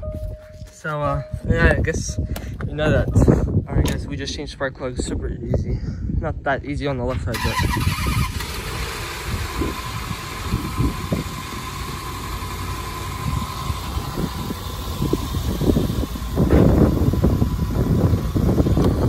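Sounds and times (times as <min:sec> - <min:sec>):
car engine idling: 0:08.4 - 0:19.0.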